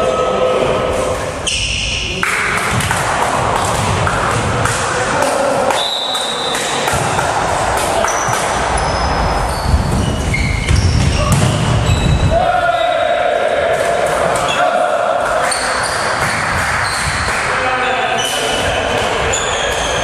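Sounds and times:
players' voices echoing: 0.0s - 20.0s
volleyball hits and thuds: 2.2s - 5.7s, 6.6s - 8.9s, 9.6s - 12.4s.

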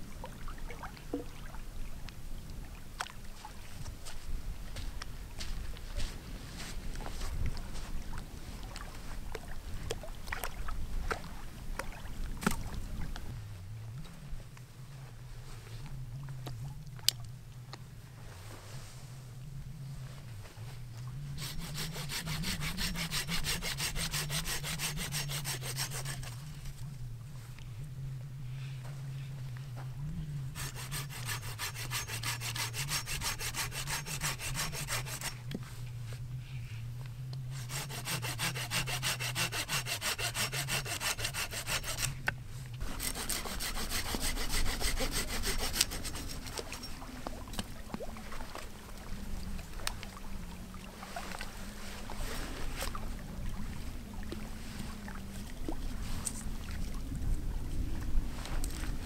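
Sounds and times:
hand saw rasping through wood: 21.4s - 26.4s, 30.6s - 35.4s, 37.5s - 42.2s, 42.8s - 46.5s.

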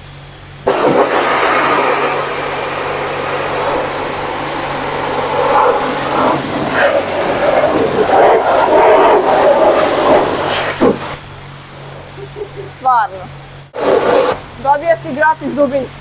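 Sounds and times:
high-pressure water spray on car: 0.6s - 12.0s, 13.7s - 14.5s.

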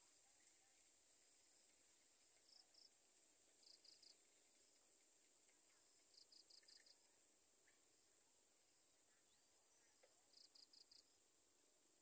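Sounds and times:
high-pitched insect hiss: 0.4s - 5.2s, 6.0s - 7.1s, 10.3s - 11.2s.

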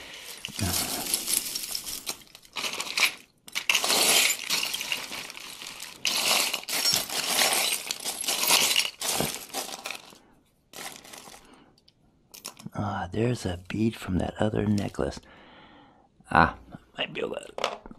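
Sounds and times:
jewelry and beads clinking: 0.0s - 11.5s.

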